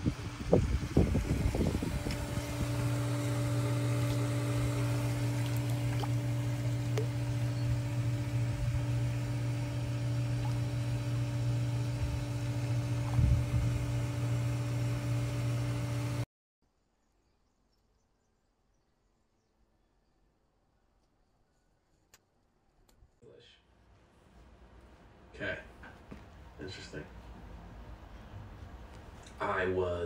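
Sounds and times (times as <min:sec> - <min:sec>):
pool filter pump humming: 0:00.0 - 0:16.2.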